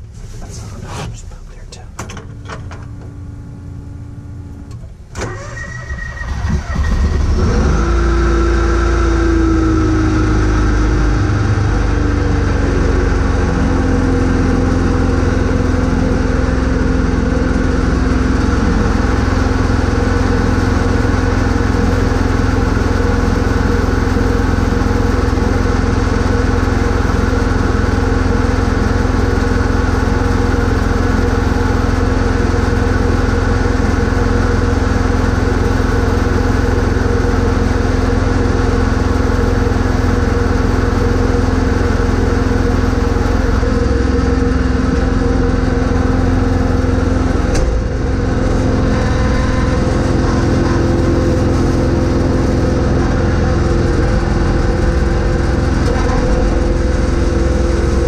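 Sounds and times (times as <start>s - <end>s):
lawn tractor engine cranking: 5.2s - 7.2s
lawn tractor engine idling: 11.7s - 58.0s.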